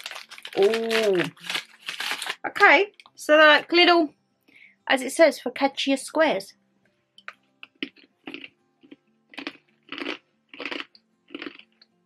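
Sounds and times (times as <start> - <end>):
chewing crunchy cracker: 0.0 - 2.4, 7.2 - 11.9.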